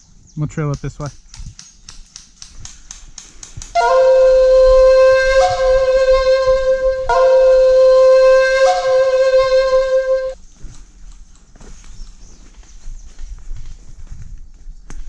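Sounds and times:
horn blasts: 0:03.8 - 0:10.4.

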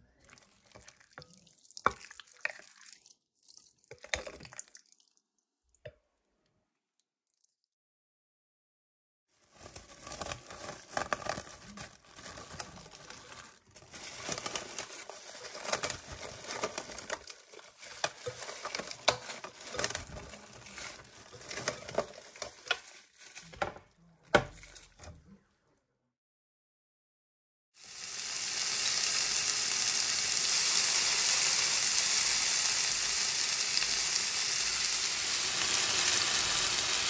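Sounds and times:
plastic wrap crinkling: 0:09.4 - 0:25.1.

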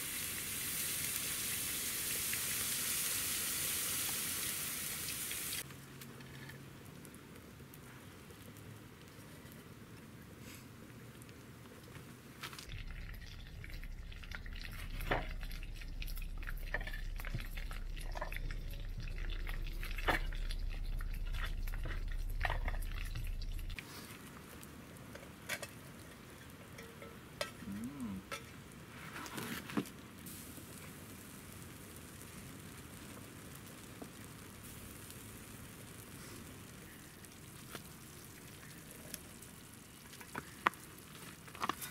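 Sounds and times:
curry sizzling in a pan: 0:00.0 - 0:05.7, 0:12.6 - 0:24.0, 0:30.2 - 0:41.9
low rumble: 0:12.7 - 0:23.8.

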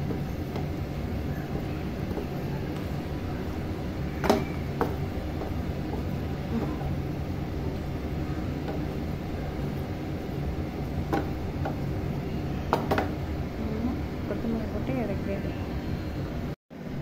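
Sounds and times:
spatula stirring thick sauce: 0:00.0 - 0:12.2
low kitchen rumble: 0:00.0 - 0:17.0
spatula knocking against pan: 0:04.2 - 0:07.1.

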